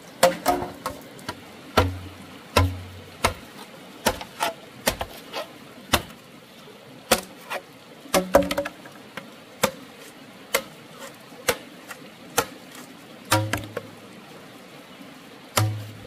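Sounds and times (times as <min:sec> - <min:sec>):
hand tool striking: 0:01.8 - 0:03.4.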